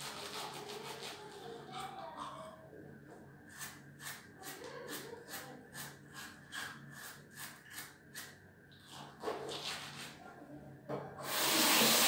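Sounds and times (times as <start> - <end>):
toothbrush scrubbing teeth: 0.0 - 1.4.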